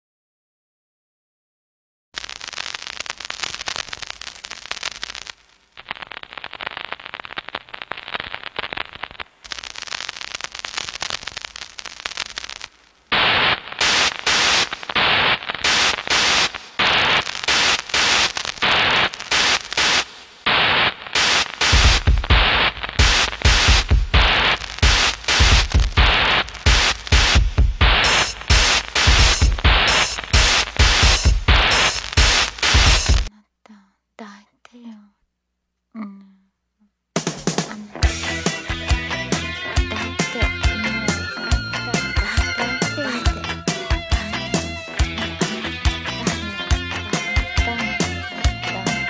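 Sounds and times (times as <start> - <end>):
crackling static: 2.2 - 33.3, 37.1 - 49.0
stuttering noise bursts: 13.1 - 33.3, 37.2 - 49.0
deep bass thuds: 21.8 - 33.3.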